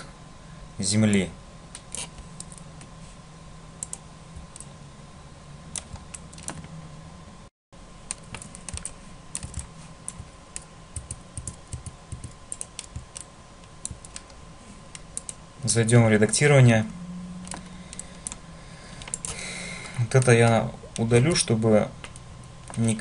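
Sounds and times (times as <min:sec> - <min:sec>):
faint electrical hum: 0:00.0 - 0:23.0
computer mouse and keyboard clicking: 0:01.1 - 0:02.9, 0:03.8 - 0:04.7, 0:05.7 - 0:06.8, 0:08.1 - 0:15.4, 0:17.4 - 0:23.0.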